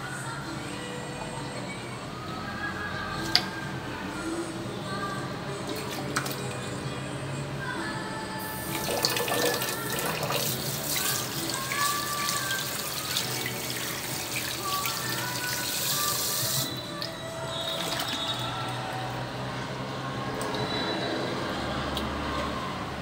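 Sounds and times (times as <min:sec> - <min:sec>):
tap water running into sink: 0:08.5 - 0:16.7.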